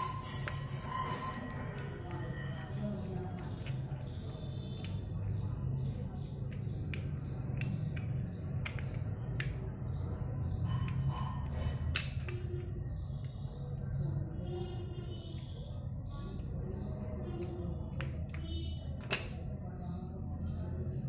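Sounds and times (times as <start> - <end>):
metallic clicks and clinks: 15.6 - 19.6.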